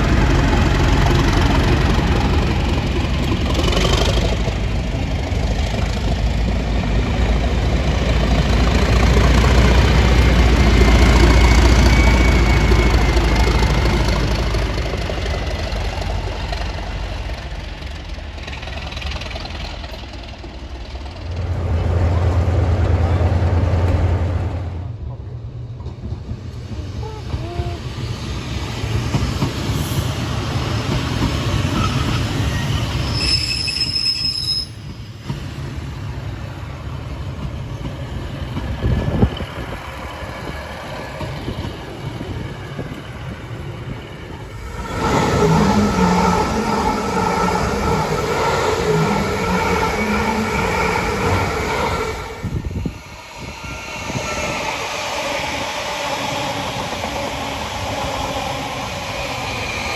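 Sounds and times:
train high-pitched whine: 0.0 - 24.8, 26.7 - 35.2, 38.0 - 59.9
rail click: 0.0 - 27.8, 28.4 - 59.9
diesel train rumbling past: 0.0 - 59.9.

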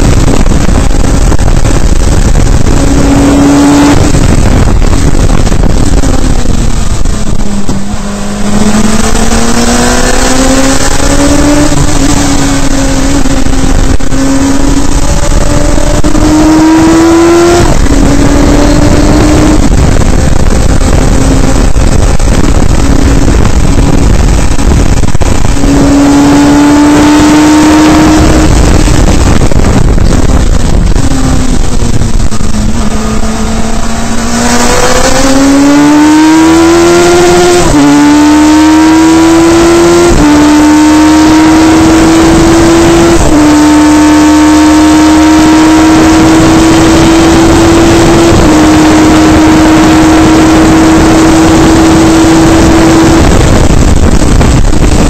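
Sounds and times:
race car engine with upshifts: 0.0 - 55.0.

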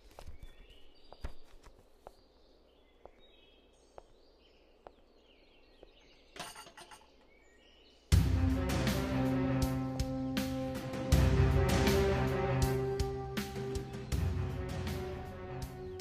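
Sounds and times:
slow footsteps: 0.0 - 6.1
faint birdsong: 0.0 - 16.0
background music: 8.1 - 16.0.

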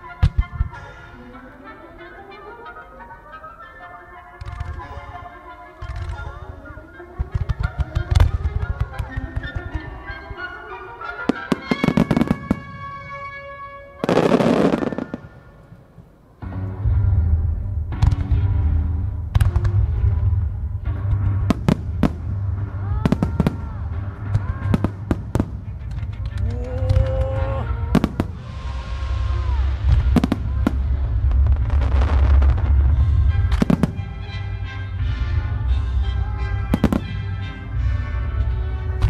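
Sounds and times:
music playing: 0.0 - 39.0
firework bursts and booms: 11.4 - 13.2, 14.0 - 16.0, 21.0 - 26.4, 27.7 - 35.4, 36.6 - 39.0
hissing crackle of fireworks: 14.0 - 16.2, 22.9 - 34.0
low rumble: 16.5 - 39.0.

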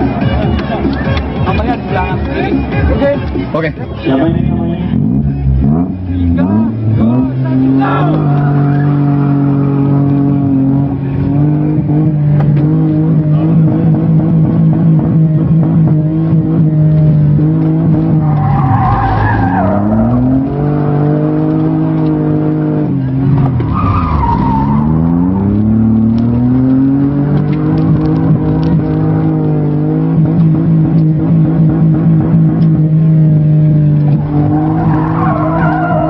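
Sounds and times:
car engine pulling hard: 0.0 - 36.0
tyres squealing: 18.1 - 21.0, 23.4 - 25.6, 34.2 - 36.0.

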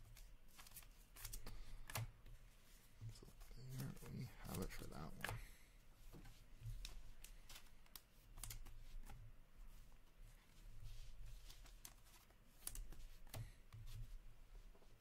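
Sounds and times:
cards flipping and sliding: 0.1 - 2.2, 3.3 - 5.4, 6.0 - 9.2, 10.9 - 14.0.

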